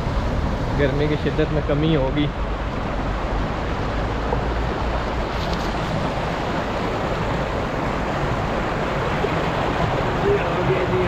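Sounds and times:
stream rushing: 0.0s - 11.0s.

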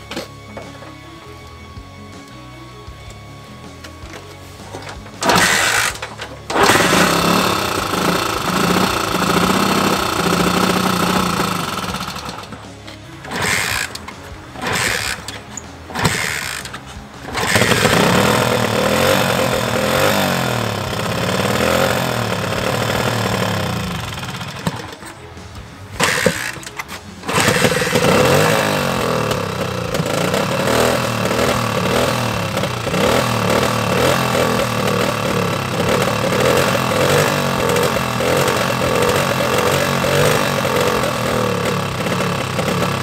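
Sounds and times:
music: 0.0s - 43.0s
motorcycle engine kick-started: 3.7s - 43.0s
motorcycle engine revving: 4.8s - 25.1s, 25.9s - 43.0s.

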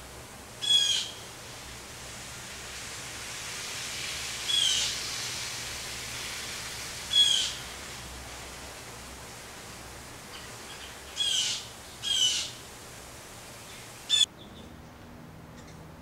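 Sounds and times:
outdoor hiss: 0.0s - 14.4s
bird calling: 0.6s - 1.3s, 4.4s - 5.0s, 7.1s - 7.7s, 10.3s - 12.6s, 13.6s - 14.7s.

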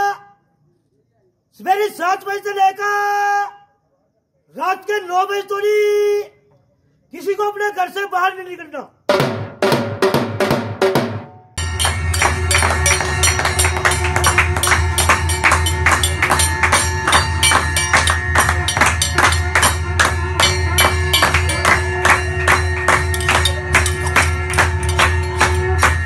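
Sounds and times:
dhol drum beats: 9.1s - 26.0s
spoon striking steel plate: 11.6s - 26.0s.

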